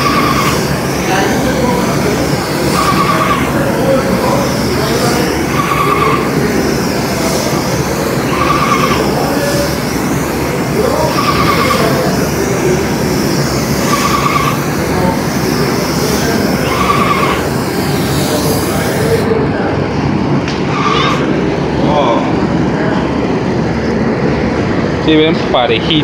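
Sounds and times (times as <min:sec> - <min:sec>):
spray gun hissing: 0:00.0 - 0:19.4
short whine: 0:00.0 - 0:23.2
loud steady machine noise: 0:00.0 - 0:26.0.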